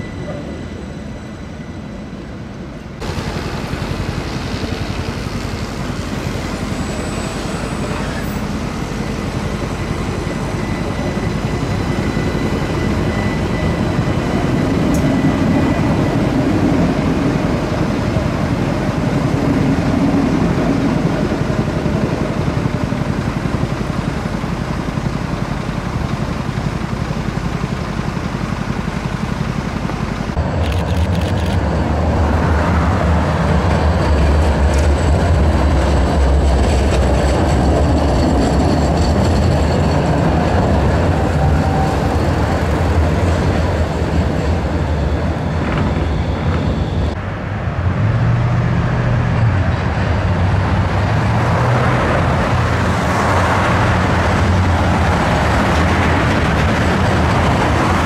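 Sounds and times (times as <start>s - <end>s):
tram wheels rumbling on track: 0.0s - 58.0s.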